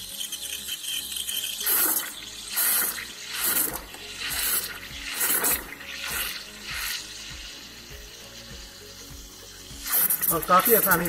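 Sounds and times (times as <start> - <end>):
steam wand frothing milk: 0.0 - 11.0.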